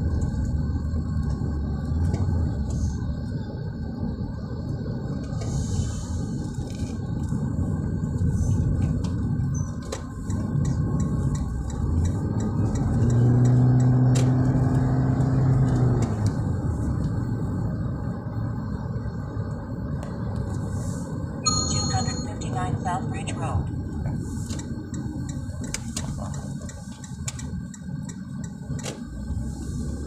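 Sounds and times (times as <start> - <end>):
car cabin road rumble: 0.0 - 30.0
low hum: 14.9 - 27.0.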